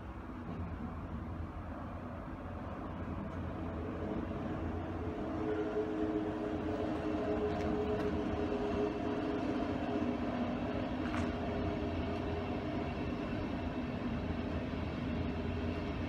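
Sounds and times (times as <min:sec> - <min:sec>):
train rolling rumble: 0:00.0 - 0:16.0.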